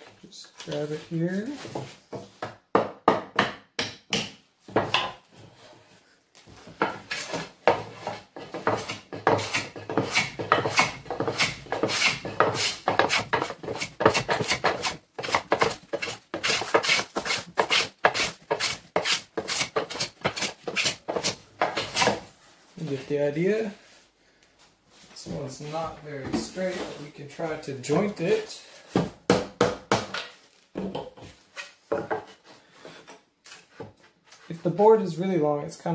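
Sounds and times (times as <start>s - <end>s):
hand plane rasping on wood: 7.1s - 22.2s.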